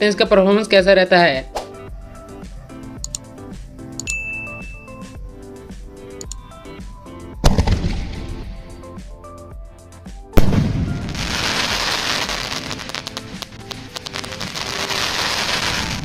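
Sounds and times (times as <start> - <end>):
firework launch thump: 7.4 - 8.4
firework crackling: 10.4 - 16.0.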